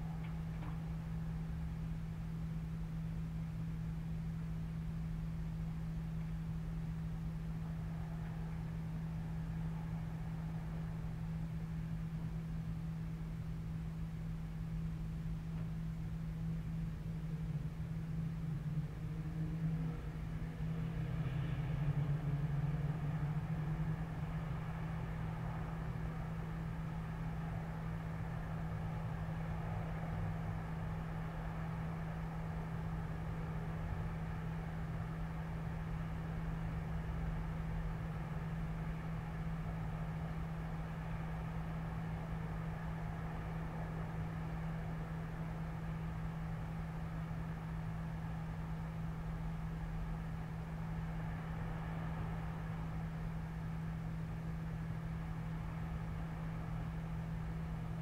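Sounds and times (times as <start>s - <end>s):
distant city traffic drone: 0.0s - 58.0s
machine hum: 0.0s - 58.0s
vehicle passing: 19.6s - 25.9s.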